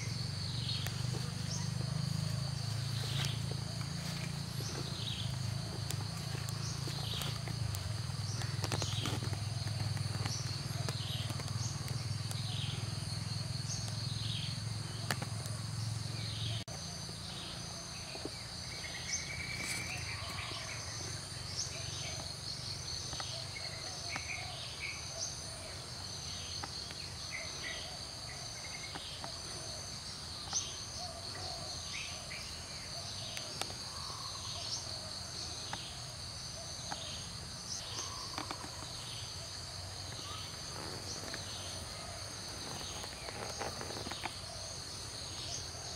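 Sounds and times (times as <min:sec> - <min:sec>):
insect trill: 0:00.0 - 0:45.9.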